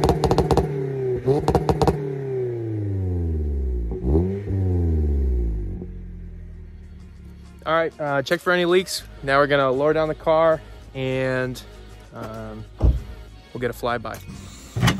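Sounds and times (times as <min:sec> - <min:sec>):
exhaust crackles and pops: 0:00.0 - 0:02.1
car engine revving: 0:00.0 - 0:07.6
car engine idling: 0:00.0 - 0:08.0.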